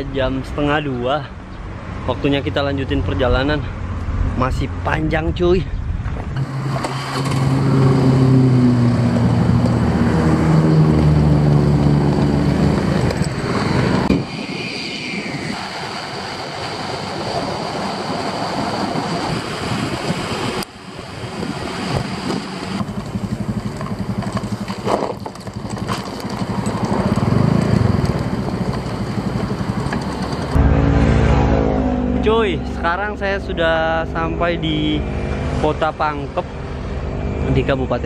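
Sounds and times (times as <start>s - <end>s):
wind and road noise: 0.0s - 38.0s
scooter engine revving: 6.4s - 14.2s, 21.2s - 32.2s.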